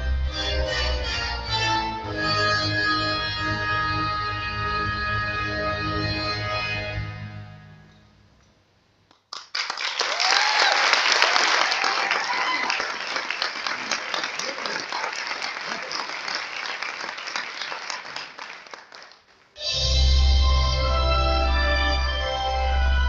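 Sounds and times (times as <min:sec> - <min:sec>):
audience applauding and cheering: 0:09.3 - 0:19.6
shouted cheers: 0:10.0 - 0:15.1.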